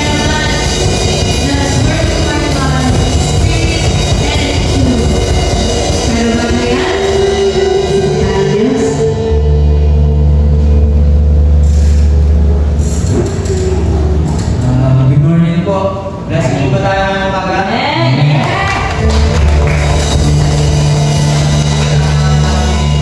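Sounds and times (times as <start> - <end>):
woman singing: 0.0 - 5.3, 6.1 - 9.4
live band playing: 0.0 - 14.6, 18.6 - 23.0.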